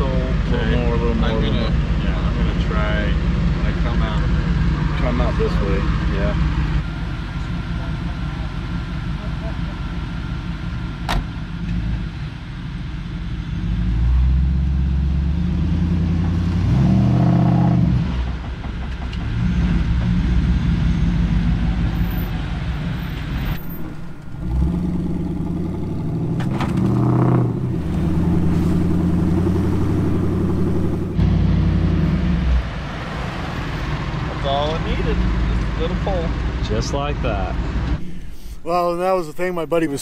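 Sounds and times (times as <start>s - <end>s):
engine revving under load: 13.5s - 38.6s.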